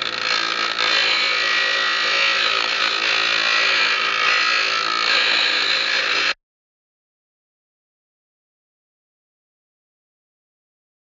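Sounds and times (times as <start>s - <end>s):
power tool running: 0.0s - 6.4s.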